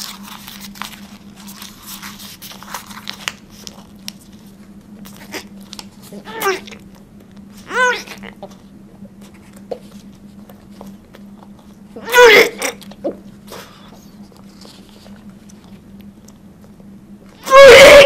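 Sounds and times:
steady low hum: 0:00.0 - 0:18.0
high-pitched vocal cries: 0:06.2 - 0:06.7, 0:07.7 - 0:08.4, 0:12.0 - 0:12.8, 0:17.4 - 0:18.0.

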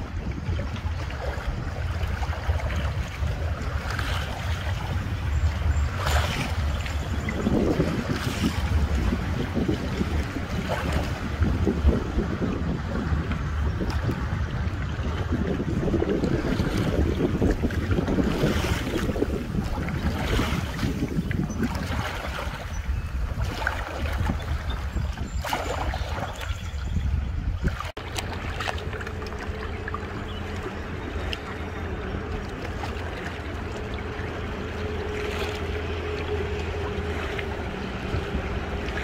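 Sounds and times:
river water noise: 0:00.0 - 0:39.0
wind buffeting microphone: 0:00.0 - 0:39.0.

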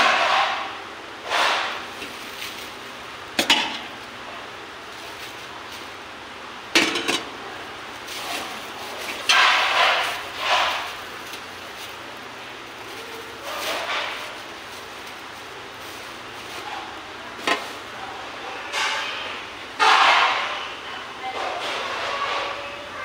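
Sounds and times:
plastic bag crinkling: 0:08.0 - 0:17.9.

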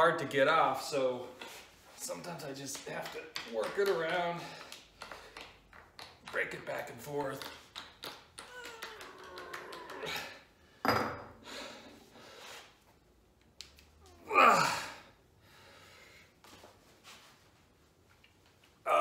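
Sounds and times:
man grunting and groaning: 0:14.2 - 0:15.1.

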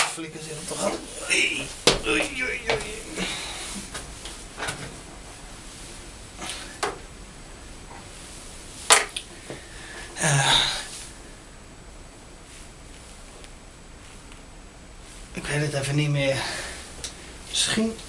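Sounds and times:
noisy rustle: 0:00.0 - 0:18.0.

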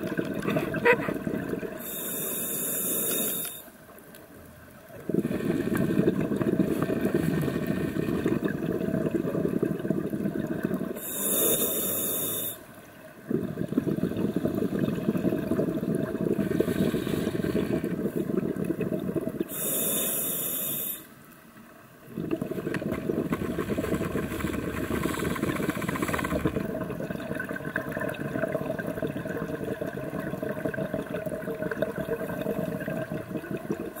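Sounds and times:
regulator exhale bubbling: 0:00.0 - 0:03.7, 0:05.0 - 0:21.1, 0:22.0 - 0:34.0
regulator inhalation hiss: 0:01.8 - 0:03.7, 0:11.0 - 0:12.7, 0:16.6 - 0:17.9, 0:19.5 - 0:21.1.

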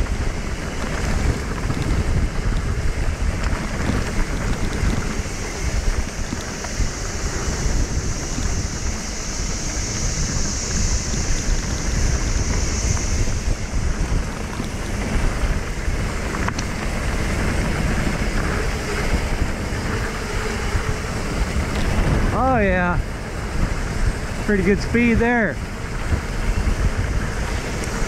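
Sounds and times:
bike tyres rolling over dirt: 0:00.0 - 0:28.0
wind buffeting microphone: 0:00.0 - 0:28.0.

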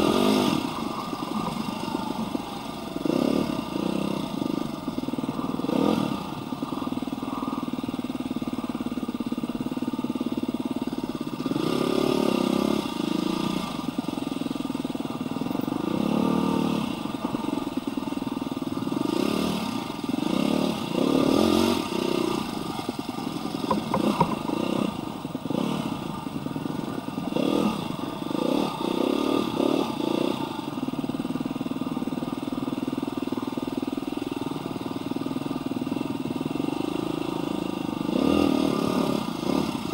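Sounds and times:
dirt bike engine revving: 0:00.0 - 0:06.5, 0:11.2 - 0:14.0, 0:18.8 - 0:30.7, 0:36.7 - 0:39.9.

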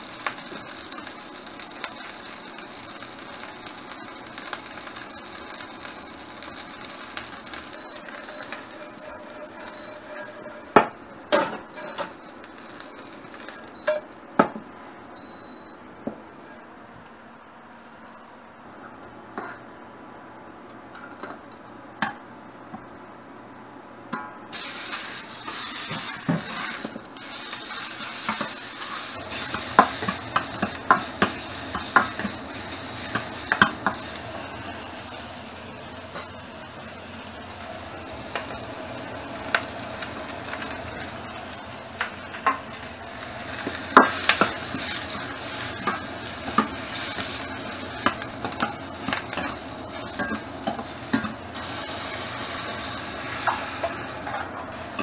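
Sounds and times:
stir-frying sizzle in a wok: 0:00.0 - 0:14.3, 0:15.2 - 0:15.8, 0:24.5 - 0:55.0
metal utensils clinking on pan: 0:48.0 - 0:51.4.

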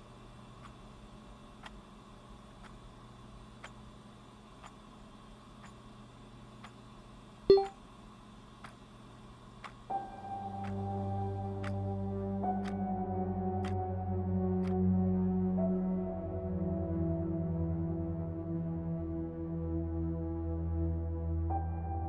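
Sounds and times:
electronic notification chime: 0:07.5 - 0:07.7
clock ticking: 0:07.5 - 0:07.8.

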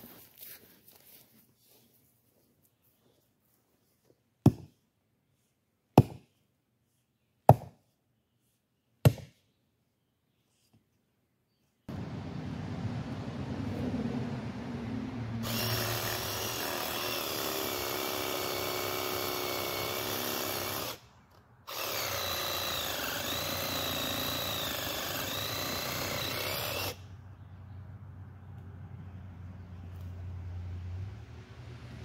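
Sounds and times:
power tool motor running: 0:15.4 - 0:21.0, 0:21.7 - 0:27.0.

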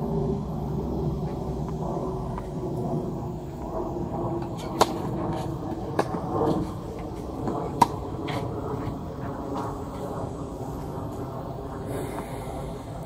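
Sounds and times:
racquet hitting tennis ball: 0:04.4 - 0:09.0
tennis ball bouncing: 0:04.4 - 0:09.0.

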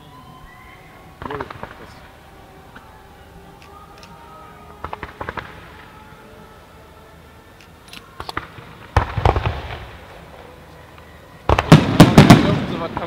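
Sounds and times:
fireworks bangs: 0:01.0 - 0:02.9, 0:04.1 - 0:06.1, 0:08.1 - 0:13.0.

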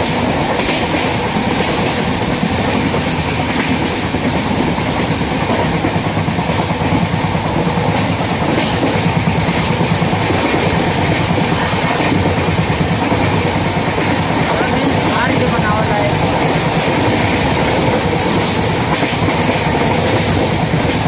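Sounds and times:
short rail clacks: 0:00.0 - 0:21.0
train wheels rumbling on rails: 0:00.0 - 0:21.0.

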